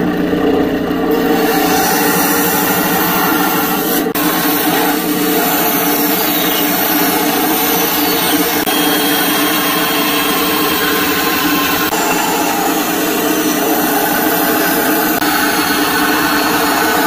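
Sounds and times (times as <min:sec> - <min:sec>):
bandsaw cutting wood: 0:01.1 - 0:17.0.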